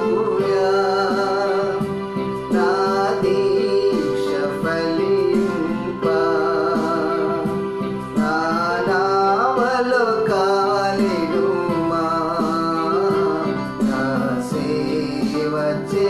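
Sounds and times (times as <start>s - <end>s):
electronic keyboard: 0.0s - 16.0s
man singing: 0.0s - 16.0s.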